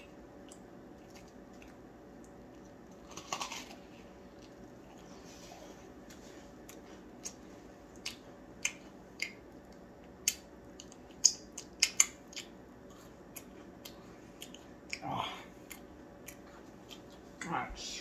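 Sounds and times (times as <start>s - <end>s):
mouth smacks from chewing: 6.1s - 15.0s.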